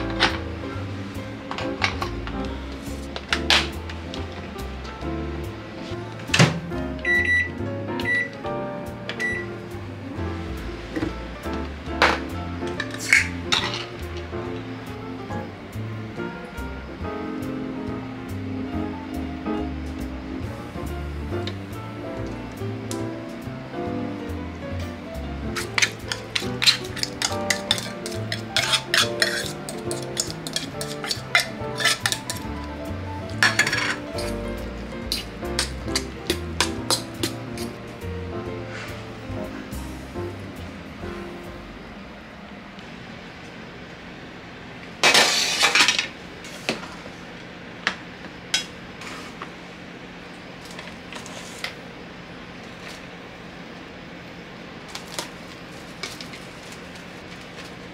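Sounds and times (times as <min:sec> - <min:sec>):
background music: 0:00.0 - 0:42.0
utensil scraping metal can: 0:25.6 - 0:32.6, 0:33.3 - 0:34.4
crackly plastic wrap rustling: 0:54.8 - 0:57.9.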